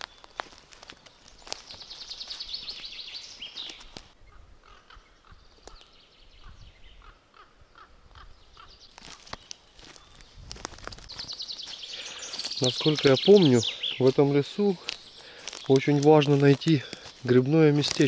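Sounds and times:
twigs snapping: 0.0s - 2.4s, 9.0s - 13.4s, 14.0s - 18.0s
footsteps on dry pine needles: 0.0s - 4.2s, 8.9s - 18.0s
songbirds singing: 0.0s - 18.0s.

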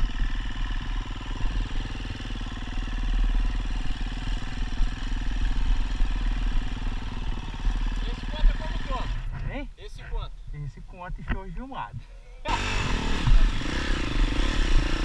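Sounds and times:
motorcycle engine at low revs: 0.0s - 9.4s, 12.5s - 15.0s.

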